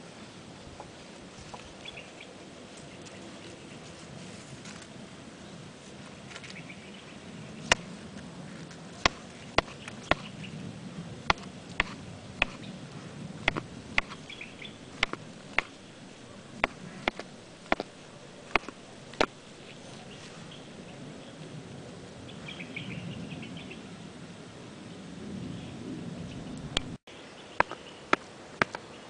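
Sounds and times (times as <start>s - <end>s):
tortoise shell knocking on shell: 9.0s - 10.3s, 11.3s - 12.6s, 13.4s - 19.8s.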